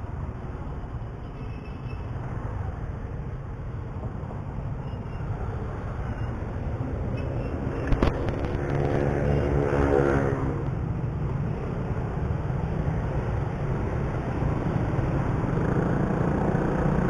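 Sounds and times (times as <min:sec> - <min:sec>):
wind and road rumble: 0:00.0 - 0:17.0.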